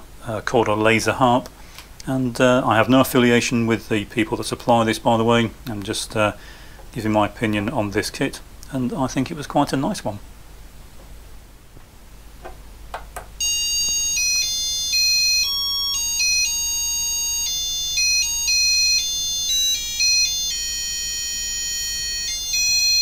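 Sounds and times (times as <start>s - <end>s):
high-pitched electronic beeps tune: 13.4s - 23.0s.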